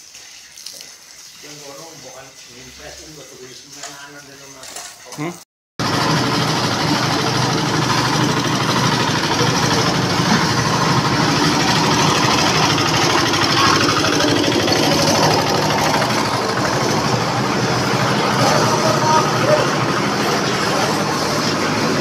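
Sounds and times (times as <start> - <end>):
small diesel engine running: 5.8 - 22.0.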